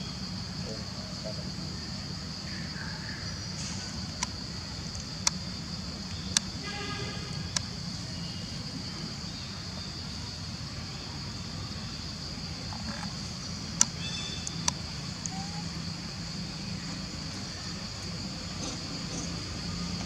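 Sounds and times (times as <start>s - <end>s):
sharp clicks: 13.8s - 15.4s.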